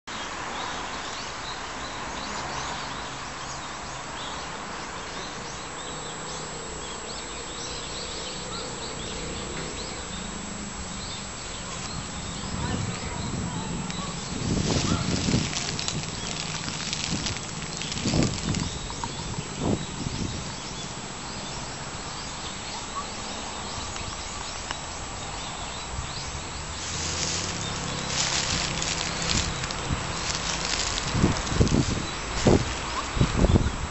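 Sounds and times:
steady hiss: 0:09.1 - 0:22.8, 0:23.9 - 0:33.9
rushing hiss: 0:26.7 - 0:33.0.

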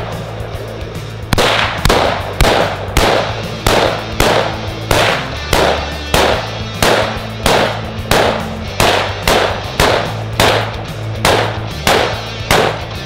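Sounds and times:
background music with bass line: 0:00.0 - 0:13.0
handgun shots: 0:01.3 - 0:13.0.

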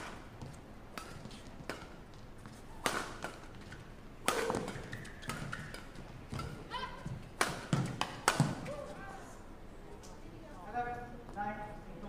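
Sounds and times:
rackets hitting shuttlecock: 0:00.0 - 0:09.0.

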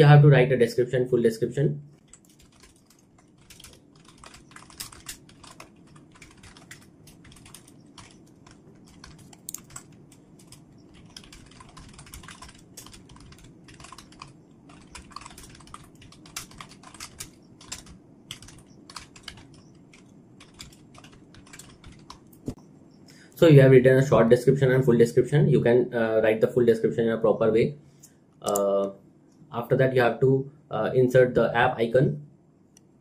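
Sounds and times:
typing on computer keyboard: 0:02.0 - 0:22.5.

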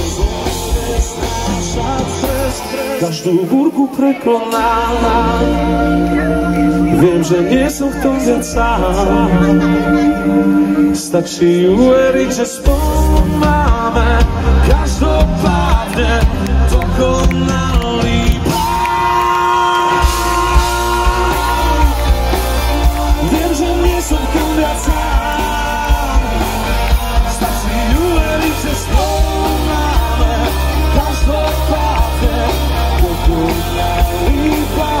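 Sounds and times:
live rock band playing: 0:00.0 - 0:35.0
male singer singing and yelling: 0:00.0 - 0:35.0.

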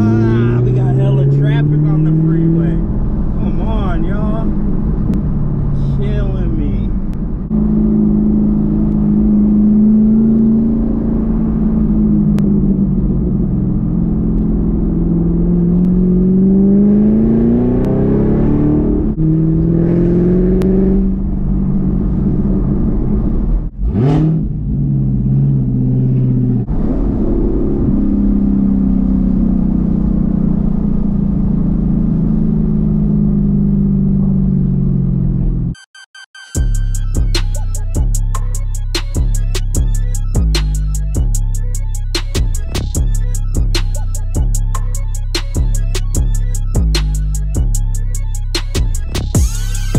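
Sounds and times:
car engine heard from inside: 0:00.0 - 0:35.8.

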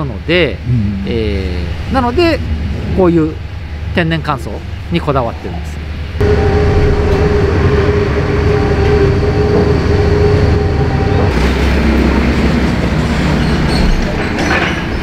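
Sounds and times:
mechanical rumble: 0:00.7 - 0:15.0
steady hum tone: 0:05.8 - 0:11.5.

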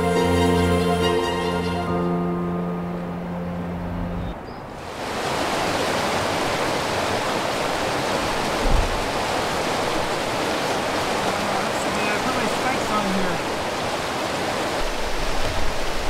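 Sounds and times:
creek water rushing: 0:00.0 - 0:16.0
low thump: 0:08.6 - 0:09.1.

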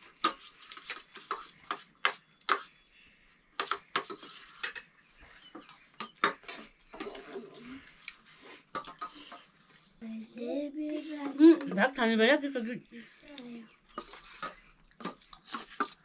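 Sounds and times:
dishes and utensils clinking: 0:08.8 - 0:09.5.

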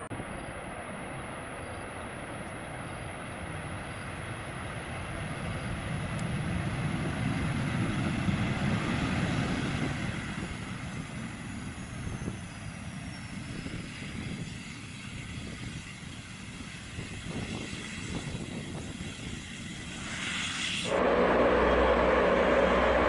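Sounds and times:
jet engines roaring: 0:03.3 - 0:13.0, 0:19.5 - 0:23.0
high whine falling in pitch: 0:20.9 - 0:23.0.

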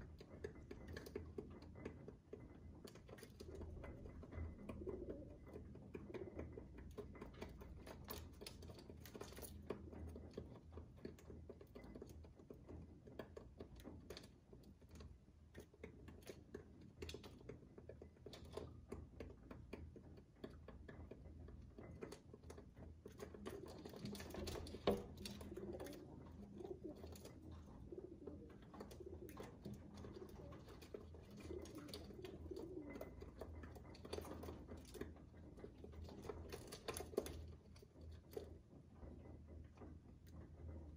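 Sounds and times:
pigeon beaks tapping on ledge: 0:00.2 - 0:37.5
pigeons cooing: 0:04.2 - 0:06.5, 0:23.9 - 0:34.6.

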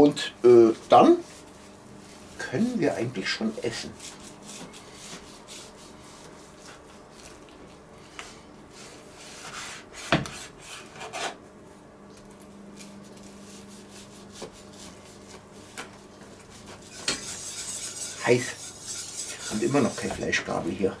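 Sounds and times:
knife scraping on cutting board: 0:16.3 - 0:20.6
knife sawing through pastry: 0:16.4 - 0:20.4.

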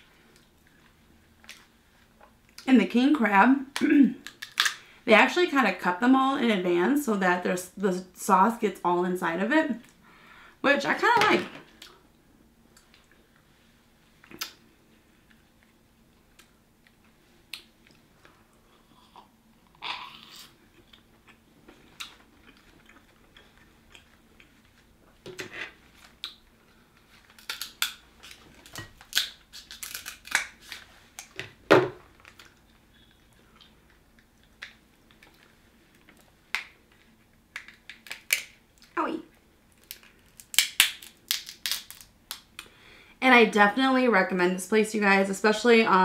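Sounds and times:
crab shell cracking: 0:04.2 - 0:04.8, 0:27.3 - 0:30.7, 0:37.5 - 0:38.9, 0:39.7 - 0:42.7
chewing and wet eating: 0:15.2 - 0:25.0, 0:32.2 - 0:39.0.

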